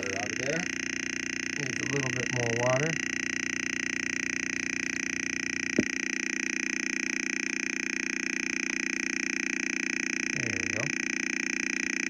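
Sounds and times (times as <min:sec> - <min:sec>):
loudspeaker electronic buzz: 0:00.0 - 0:12.0
short thump: 0:05.7 - 0:06.0.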